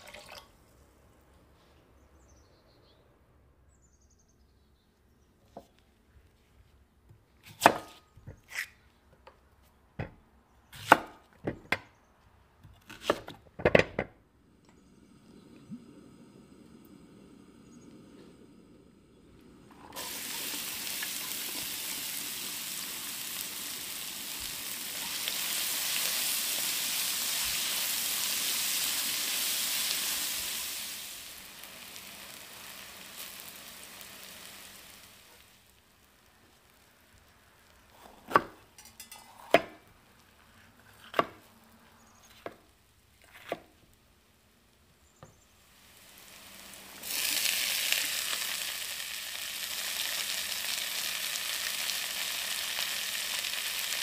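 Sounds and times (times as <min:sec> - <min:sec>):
onion sizzling in hot oil: 0:14.9 - 0:37.9, 0:38.6 - 0:40.4, 0:45.1 - 0:54.0
peppers dropping into wok: 0:38.7 - 0:39.5.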